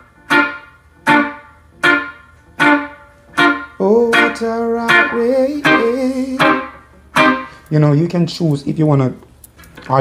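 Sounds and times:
electric guitar chord stabs: 0.0 - 7.6
man singing: 3.8 - 6.8.

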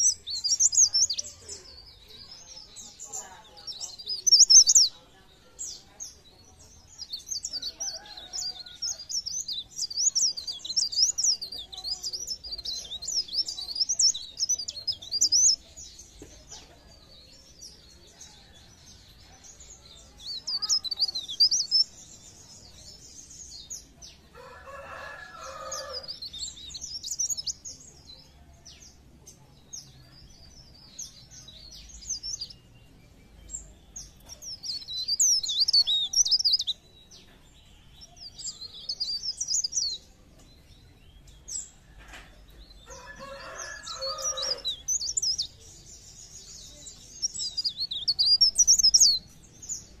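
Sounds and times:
warbler singing high chirps and trills: 0.0 - 50.0.

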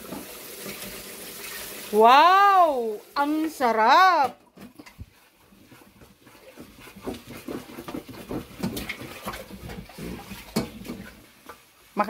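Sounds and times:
wooden spatula scraping a wok: 3.3 - 12.0.

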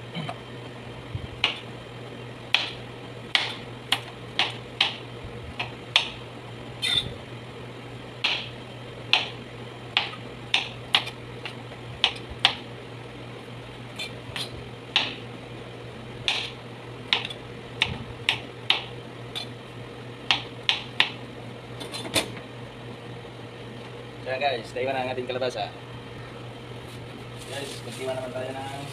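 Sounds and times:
steady low hum: 0.0 - 28.9
knife chopping on cutting board: 2.5 - 5.0, 8.2 - 8.5, 9.1 - 9.4, 14.0 - 15.2, 16.3 - 19.5, 20.3 - 21.2.

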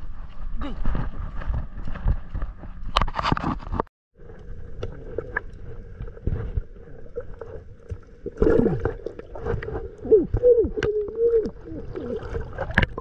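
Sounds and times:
muffled underwater sloshing: 4.2 - 13.0.

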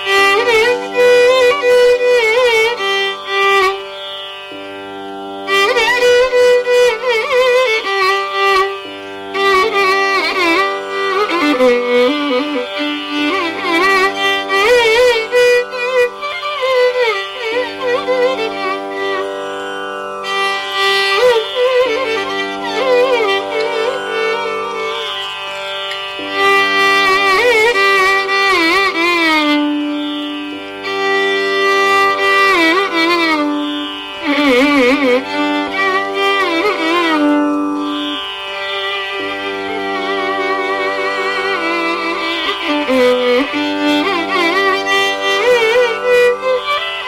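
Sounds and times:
ornamented classical melody: 0.0 - 47.0.

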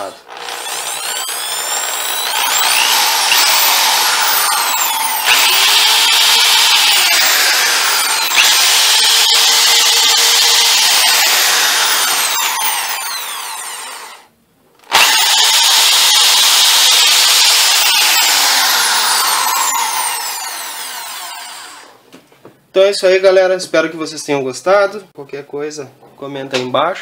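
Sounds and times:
hammer drill motor whine: 0.0 - 14.3, 14.9 - 21.9.

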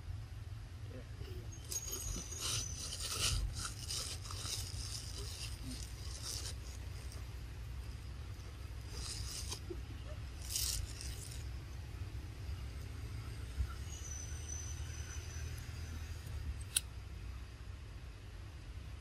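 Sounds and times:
steady low rumble: 0.0 - 19.0
leafy plants rustling: 1.3 - 16.2.

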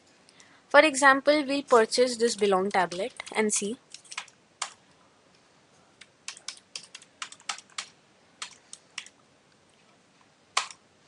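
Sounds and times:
keyboard keystrokes: 2.3 - 4.8, 6.0 - 9.1, 10.6 - 10.8.

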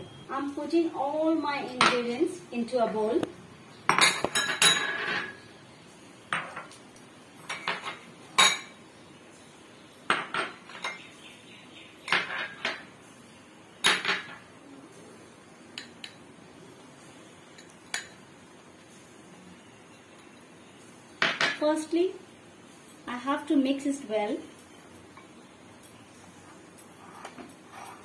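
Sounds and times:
glass bowls clinking: 3.9 - 5.4, 7.4 - 8.8.

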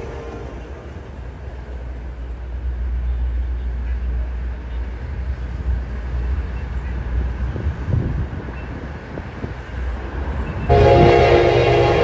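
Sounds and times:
train rumble: 0.0 - 12.0
wind buffeting microphone: 5.2 - 12.0.

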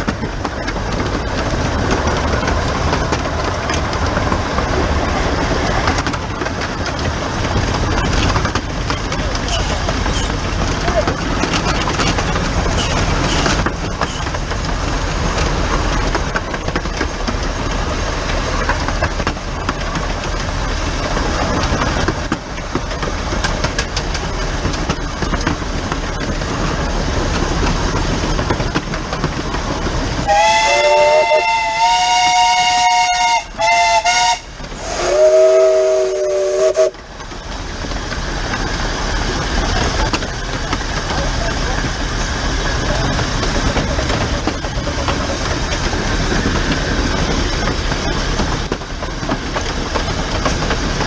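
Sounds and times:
steam locomotive running: 0.0 - 51.0
high steam whistle blast: 30.2 - 37.0
lower-pitched steam whistle: 30.2 - 37.0.

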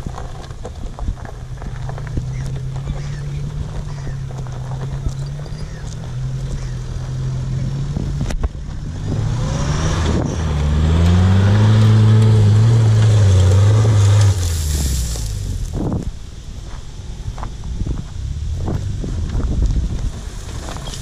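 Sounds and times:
pickup engine revving hard: 7.2 - 15.3.

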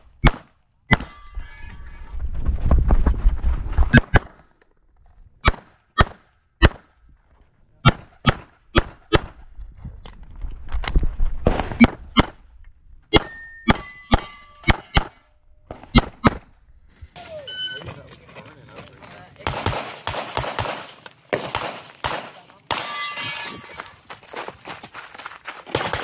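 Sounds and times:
steel target ringing: 13.2 - 15.0, 22.7 - 23.9
pistol shots: 19.4 - 23.3, 25.7 - 26.0.

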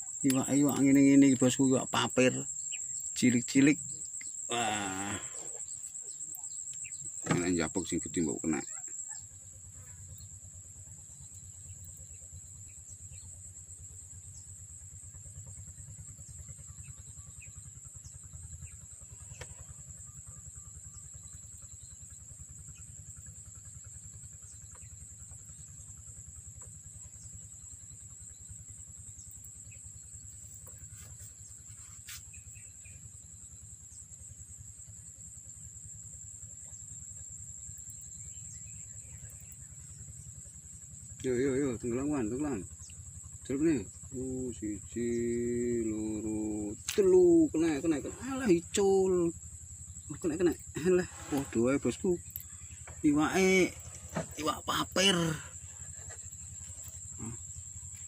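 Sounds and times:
insects trilling: 0.0 - 58.0
faint ticks: 5.1 - 7.2, 19.2 - 19.8, 52.2 - 53.1.

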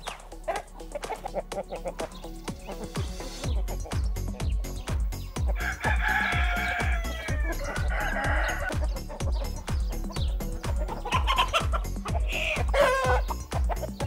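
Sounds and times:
background music with bass beat: 0.0 - 14.0
rooster crowing: 5.6 - 8.8, 12.4 - 13.3.

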